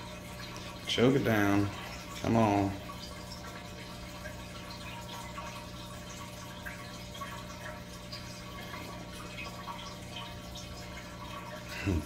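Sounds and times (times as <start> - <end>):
aquarium filter hum: 0.0 - 12.0
water trickling and dripping: 0.0 - 12.0.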